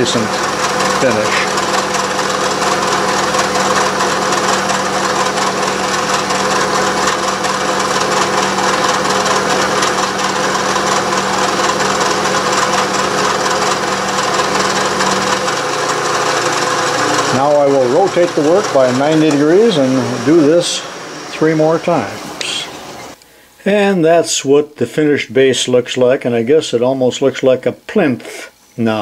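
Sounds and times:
cutter hissing and rasping: 0.0s - 23.2s
milling machine hum: 0.0s - 23.2s.

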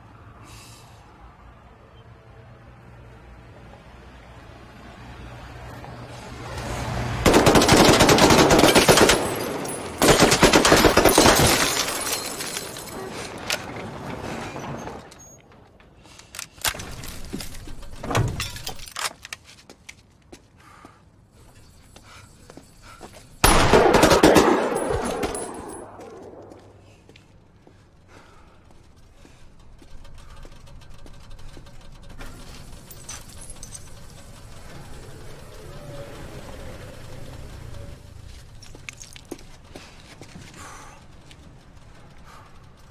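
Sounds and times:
submachine gun automatic bursts: 7.2s - 11.9s, 23.4s - 26.4s.

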